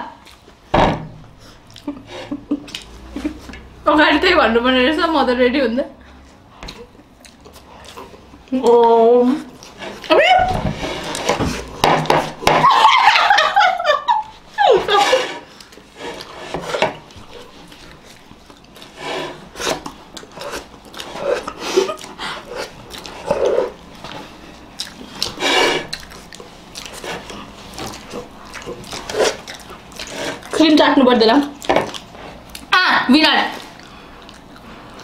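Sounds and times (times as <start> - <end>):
person laughing: 1.8 - 3.6, 12.6 - 15.4
faces rubbing against plates: 9.7 - 12.9, 14.5 - 17.9, 18.8 - 23.8, 25.2 - 26.0
slurping and smacking eating: 14.2 - 30.8, 31.5 - 32.7.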